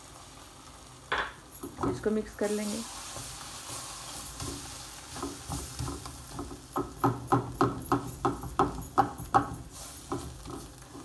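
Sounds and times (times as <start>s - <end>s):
light sizzle: 0.0s - 11.0s
spatula scraping frying pan: 2.4s - 11.0s.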